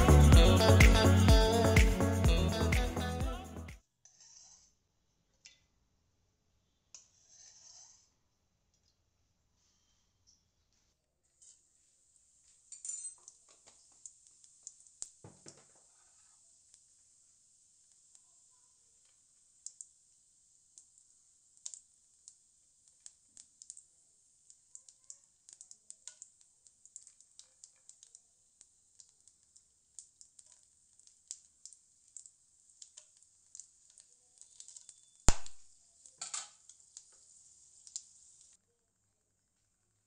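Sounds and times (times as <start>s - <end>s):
seeds sizzling in hot oil: 15.8s - 38.6s.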